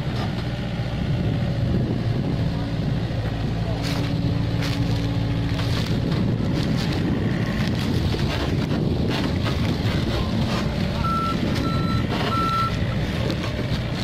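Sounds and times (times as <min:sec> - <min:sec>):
diesel excavator engine running: 0:00.0 - 0:14.0
knocks of soil and bucket: 0:03.8 - 0:14.0
short high alarm beeps: 0:11.0 - 0:12.8.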